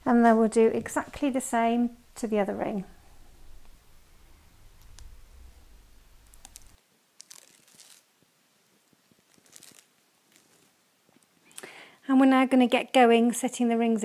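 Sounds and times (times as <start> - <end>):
adhesive tape rustling and crinkling: 6.2 - 11.4.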